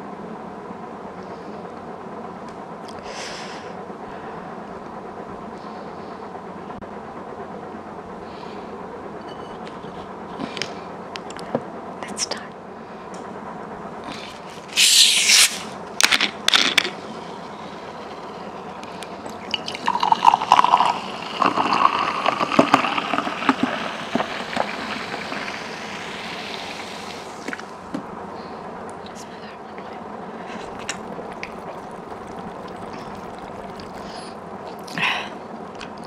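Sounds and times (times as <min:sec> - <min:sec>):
liquid pouring into glass: 0:17.1 - 0:27.8, 0:30.5 - 0:34.4.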